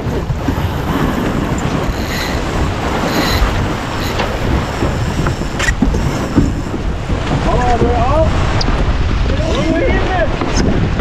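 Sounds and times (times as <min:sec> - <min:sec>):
water rushing along hull: 0:00.0 - 0:11.0
wind buffeting microphone: 0:00.0 - 0:11.0.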